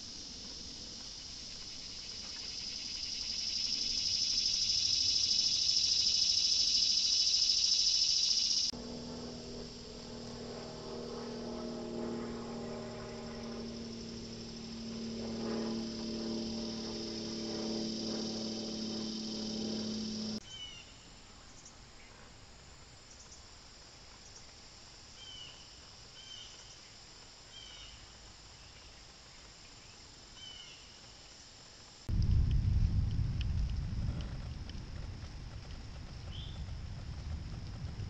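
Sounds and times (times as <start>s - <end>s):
high insect buzz: 0.0s - 20.9s
faint insect buzz: 0.0s - 32.0s
low steady hum: 8.0s - 23.5s, 32.1s - 38.0s.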